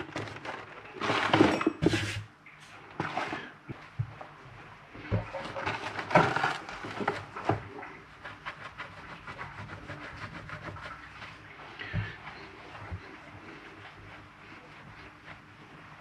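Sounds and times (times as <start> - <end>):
kitchen items knocking and clattering: 0.0 - 2.2, 5.0 - 7.8.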